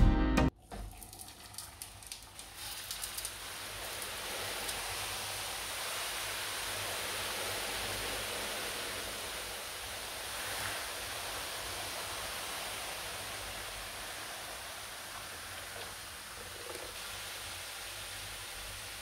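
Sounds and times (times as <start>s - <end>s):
water splashing into metal tray: 0.6s - 4.8s
hot water pouring: 0.6s - 19.0s.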